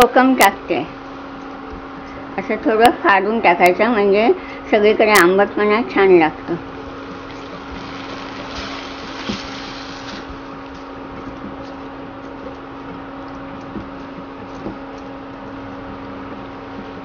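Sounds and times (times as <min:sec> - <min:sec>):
cooling fan humming: 0:00.0 - 0:17.0
food sizzling in a pan: 0:07.0 - 0:10.4.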